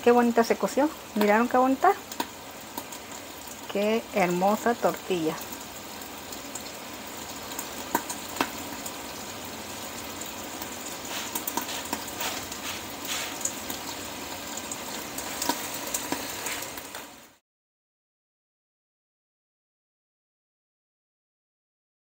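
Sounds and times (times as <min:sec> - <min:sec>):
pot bubbling: 0:00.0 - 0:17.4
tortilla sizzling on hot pan: 0:00.2 - 0:17.4.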